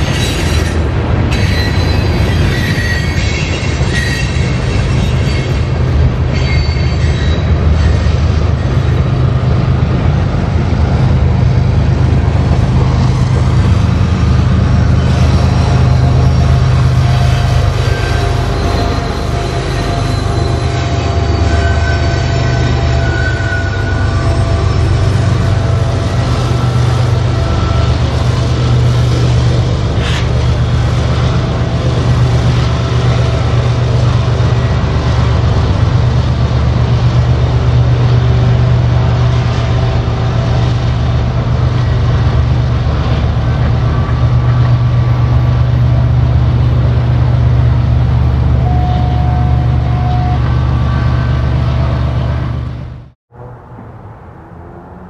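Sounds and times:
diesel locomotive engine rumble: 0.0 - 55.0
thin wheel squeals: 0.1 - 5.6, 6.3 - 8.1, 17.8 - 24.9.

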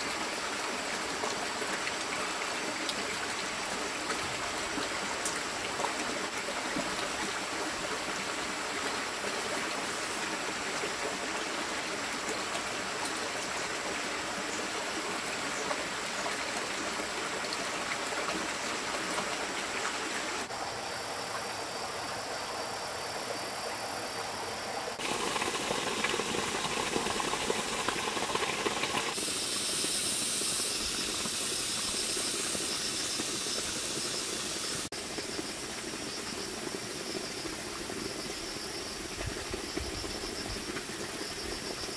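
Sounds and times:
stream water rushing: 0.0 - 22.8, 23.4 - 38.2
insect chirring: 29.1 - 40.6.

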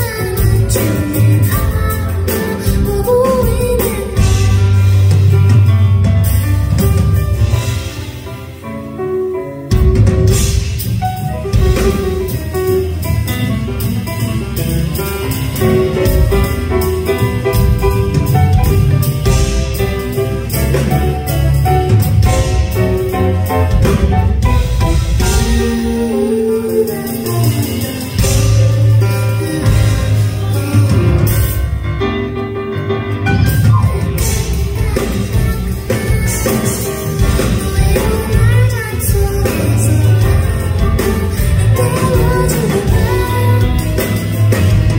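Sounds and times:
woman singing: 0.0 - 5.0, 25.2 - 31.6, 33.8 - 44.9
drum kit: 0.0 - 44.9
grand piano: 0.0 - 44.9
live band music: 0.0 - 44.9
low bass: 9.8 - 36.3.

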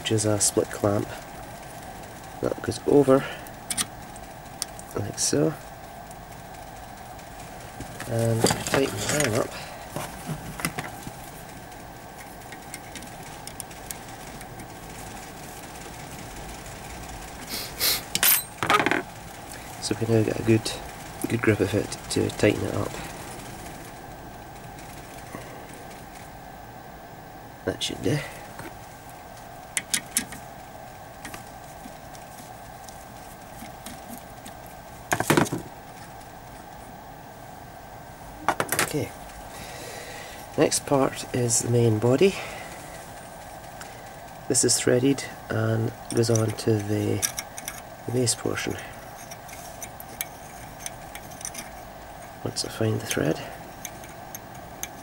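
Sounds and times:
steady low hum: 0.0 - 55.0
hex key scraping and clicking: 7.3 - 15.5, 29.7 - 30.5, 45.9 - 48.0, 48.6 - 55.0.

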